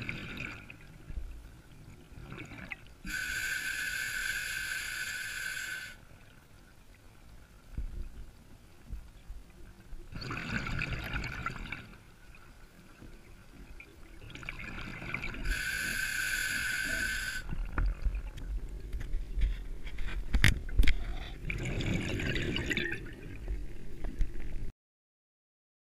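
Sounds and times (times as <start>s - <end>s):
diver breathing through regulator: 3.1s - 6.0s, 15.4s - 17.5s.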